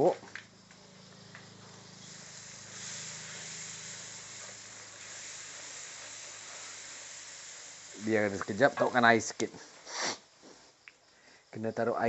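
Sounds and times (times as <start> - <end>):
steady low hum: 0.2 - 9.4
spice paste sizzling in oil: 0.5 - 9.3.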